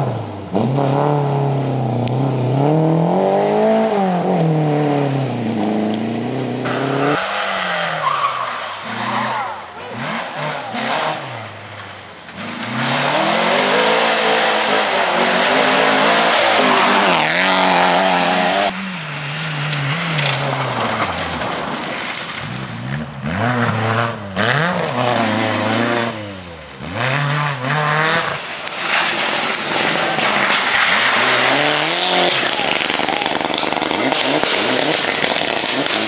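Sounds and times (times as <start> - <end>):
rally car engines revving: 0.0 - 36.0
tyres hissing on gravel: 28.4 - 36.0.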